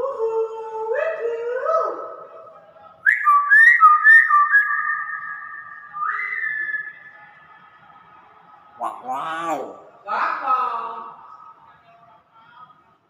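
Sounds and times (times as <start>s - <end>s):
myna bird whistling: 3.1s - 7.0s.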